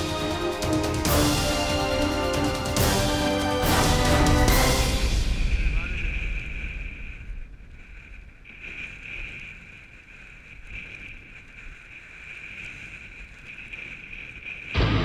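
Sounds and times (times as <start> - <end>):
wind buffeting microphone: 5.0 - 15.0.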